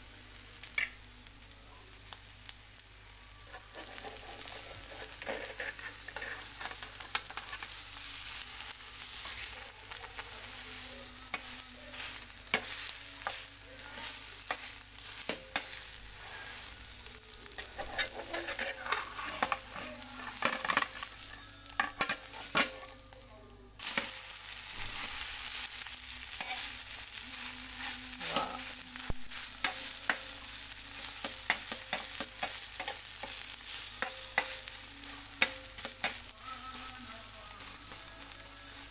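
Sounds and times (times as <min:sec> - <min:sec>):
omelette sizzling in frying pan: 0:00.0 - 0:38.9
spatula scraping pan: 0:03.5 - 0:21.1, 0:26.3 - 0:36.8.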